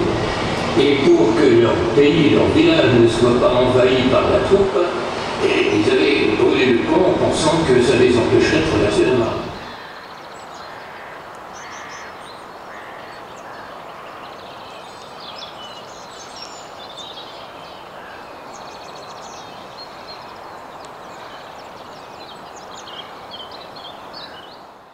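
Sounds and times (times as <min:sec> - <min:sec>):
steady background hiss: 0:00.0 - 0:24.9
small birds chirping: 0:09.0 - 0:24.8.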